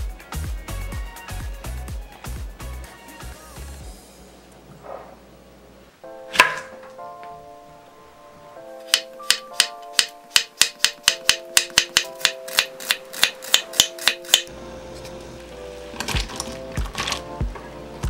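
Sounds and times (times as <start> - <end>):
knife chopping on wooden board: 6.3 - 6.7, 8.9 - 14.5.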